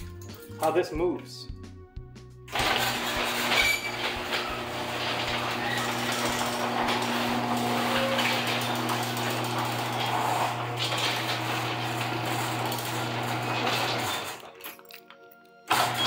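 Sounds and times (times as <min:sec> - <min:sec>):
garage door opener motor hum: 0:02.5 - 0:14.6, 0:15.7 - 0:16.0
garage door rolling on tracks: 0:02.5 - 0:14.6, 0:15.7 - 0:16.0.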